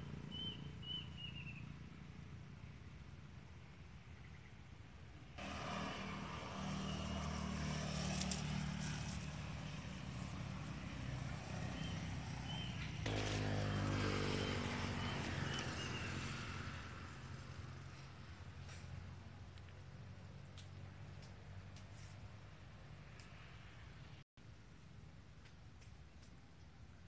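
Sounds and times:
vehicle engine hum: 5.2s - 24.2s
vehicle passing with rising engine: 5.4s - 24.0s.

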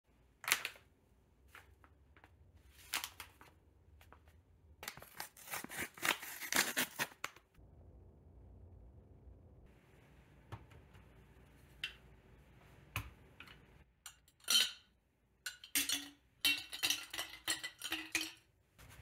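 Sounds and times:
paper bag tearing: 5.0s - 7.3s.

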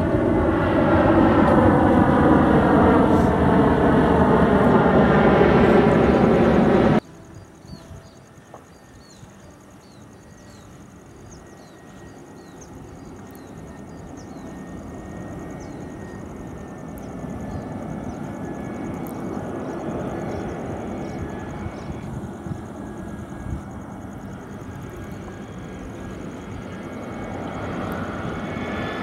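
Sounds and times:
jet airliner engine rumble: 0.0s - 29.0s
thin steady engine whine: 0.0s - 29.0s.

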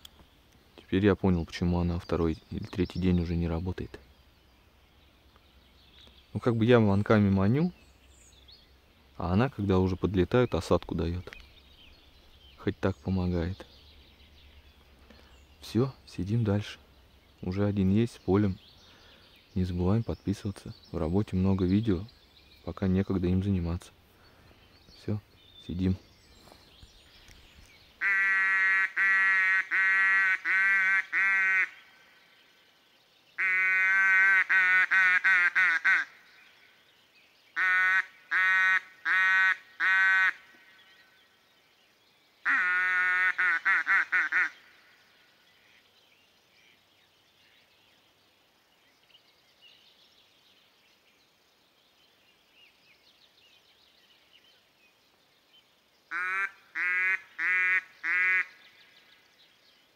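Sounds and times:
loud duck quacking: 28.0s - 31.8s, 33.4s - 36.1s, 37.6s - 40.4s, 42.4s - 44.6s, 56.1s - 58.6s.

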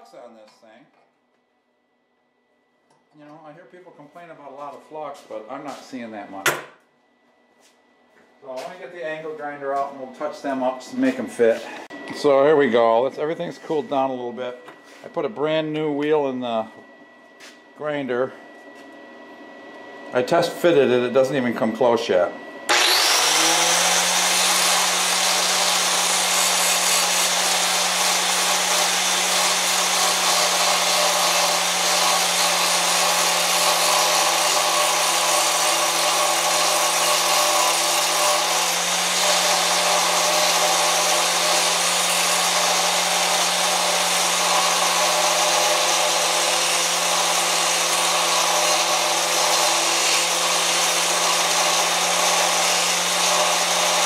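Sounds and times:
angle grinder grinding metal: 20.2s - 54.0s.

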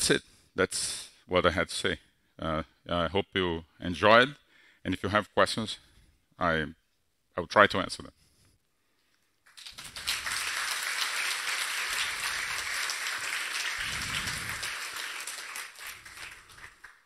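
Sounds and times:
audience applauding: 9.5s - 17.0s.

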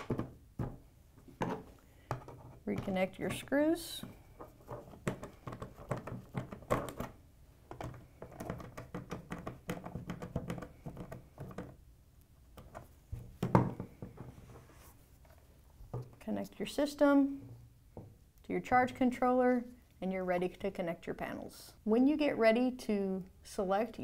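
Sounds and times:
plastic box thunk: 13.3s - 14.2s.

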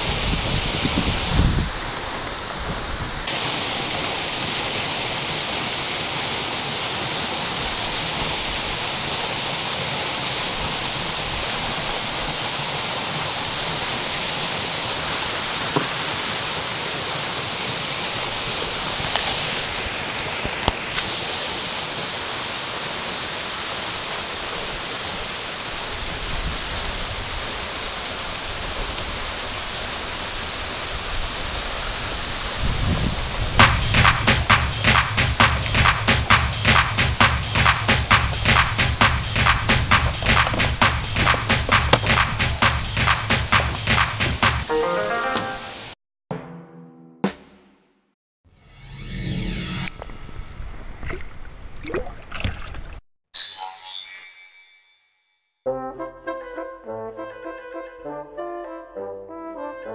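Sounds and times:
waterfall rushing: 0.0s - 32.6s, 33.2s - 46.0s.

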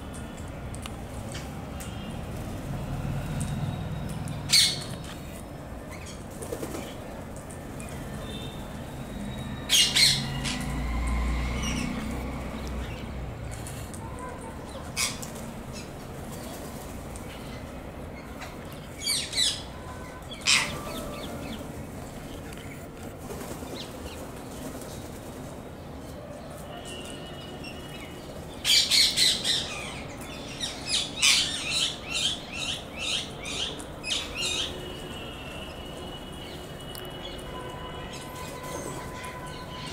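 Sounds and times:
parakeets squawking: 4.5s - 5.0s, 9.7s - 10.7s, 20.4s - 21.6s
wings flapping: 6.3s - 7.0s, 23.1s - 25.5s.

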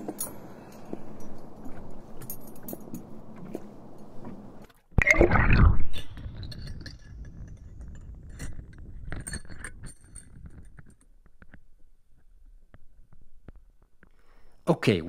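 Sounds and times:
splash and gurgle: 5.0s - 6.2s
metal tools clinking underwater: 5.9s - 11.2s.

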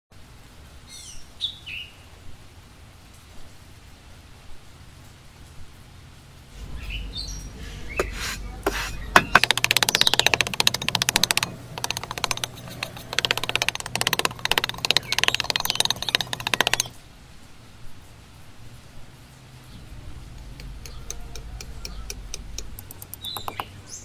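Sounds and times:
metal trowel scraping sand: 6.6s - 10.0s.

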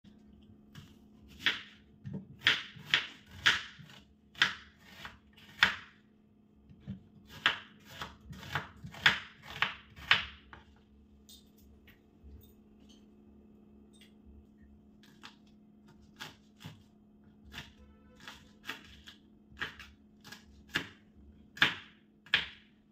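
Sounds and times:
knife slicing onion on board: 0.7s - 6.0s, 6.7s - 10.8s, 15.0s - 22.7s.

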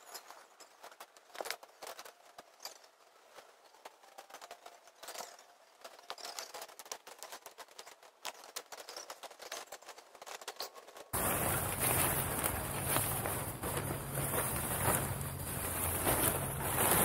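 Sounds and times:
tent clicks and rustles: 0.0s - 17.0s
footsteps on dirt path: 11.2s - 17.0s
low hum: 11.2s - 17.0s.

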